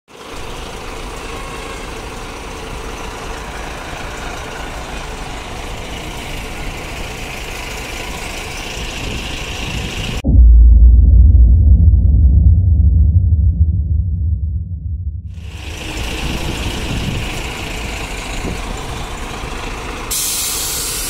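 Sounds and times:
bus engines idling: 0.1s - 10.2s, 15.4s - 21.0s
street noise: 0.1s - 10.2s, 15.3s - 21.0s
deep booming tone: 10.2s - 17.8s.

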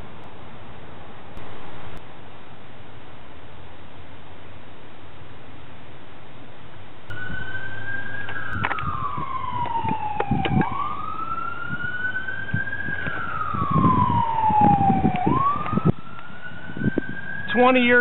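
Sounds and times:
low rumbling noise: 0.0s - 18.0s
siren wailing: 7.1s - 18.0s.

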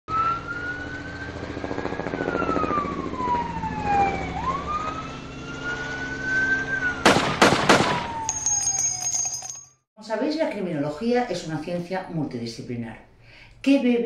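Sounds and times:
siren wailing: 0.1s - 7.1s, 8.0s - 8.4s
sharp bangs: 7.0s - 8.4s.

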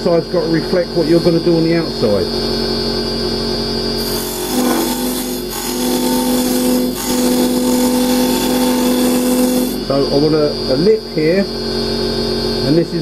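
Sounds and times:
lathe hum: 0.4s - 12.7s
chisel cutting wood on lathe: 4.0s - 9.9s.

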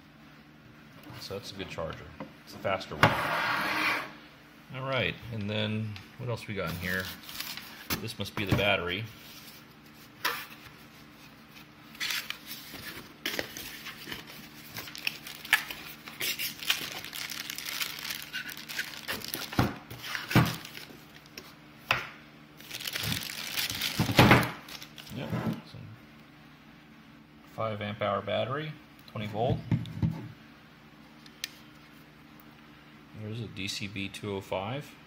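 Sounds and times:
plastic bag crinkling: 13.4s - 21.4s, 22.6s - 25.2s.

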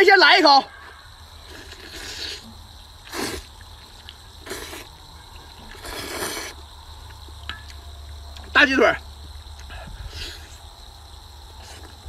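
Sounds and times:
person slurping noodles: 1.5s - 2.5s, 3.1s - 3.5s, 4.4s - 4.9s, 5.8s - 6.6s.

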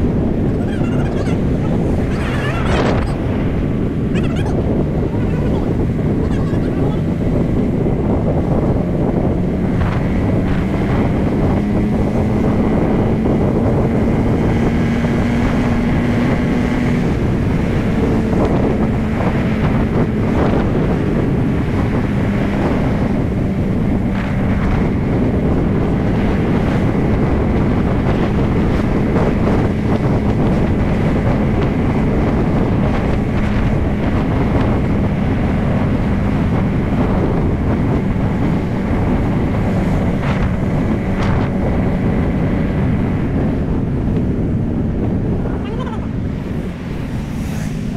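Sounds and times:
motorcycle engine cruising: 0.0s - 47.9s
wind buffeting microphone: 0.0s - 47.9s.

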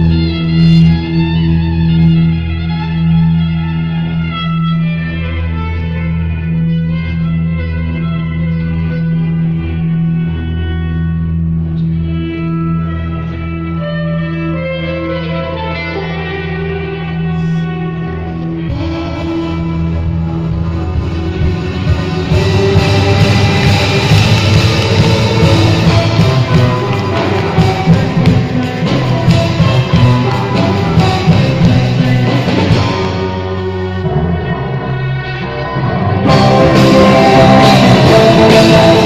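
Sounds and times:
drums: 0.0s - 7.7s, 8.8s - 39.0s
electric guitar: 0.0s - 39.0s
violin melody: 0.0s - 39.0s
low bass drone: 16.8s - 39.0s.

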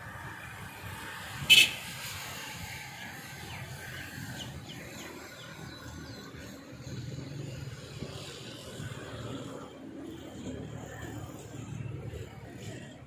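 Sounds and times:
low outdoor rumble: 2.6s - 13.0s.

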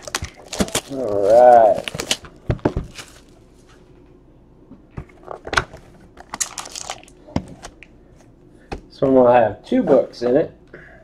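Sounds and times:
plastic wrap crinkling: 0.0s - 3.4s, 6.2s - 7.8s.

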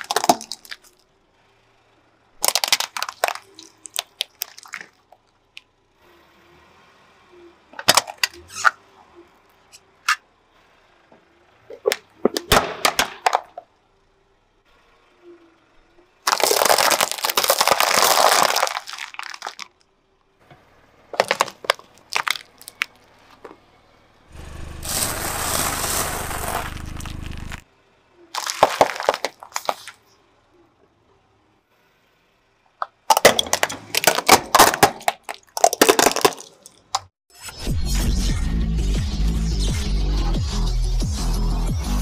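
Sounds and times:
dense crunching: 0.0s - 1.0s, 2.4s - 5.0s, 16.3s - 19.8s, 21.1s - 23.0s, 24.4s - 27.6s, 28.4s - 30.1s, 33.1s - 37.1s
tyre crushing objects: 16.3s - 19.7s, 21.2s - 22.9s, 24.4s - 27.6s, 28.4s - 30.0s.

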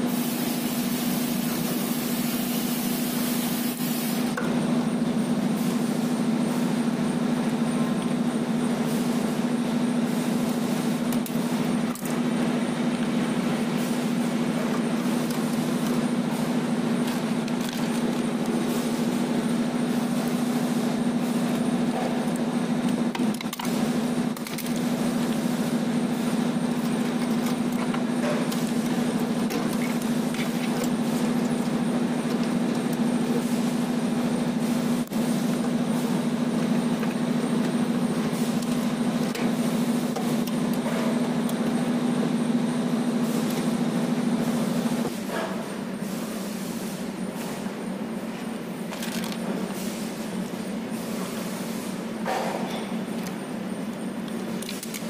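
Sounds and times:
hiss: 0.1s - 4.3s.

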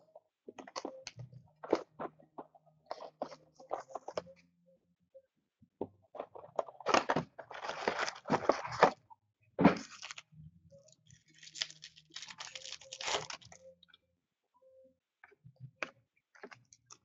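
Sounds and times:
packaging clicks and rustles: 6.2s - 9.0s, 11.0s - 13.6s
packaging tearing and crinkling: 9.8s - 10.2s, 11.2s - 13.6s.

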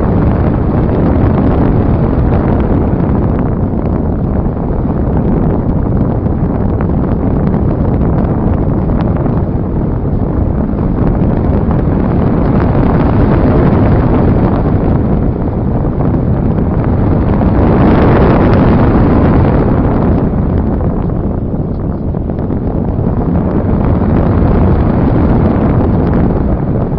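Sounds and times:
wind rushing over microphone: 0.0s - 26.9s.

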